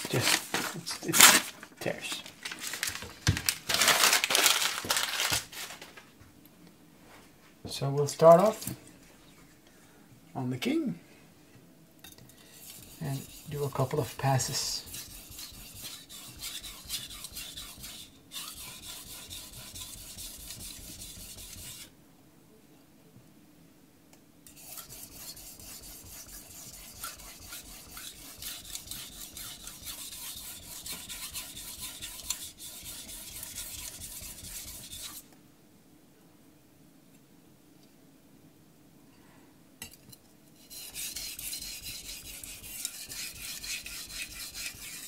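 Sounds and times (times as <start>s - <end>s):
knife rasping on whetstone: 12.5s - 21.9s, 24.5s - 35.2s, 40.6s - 45.0s.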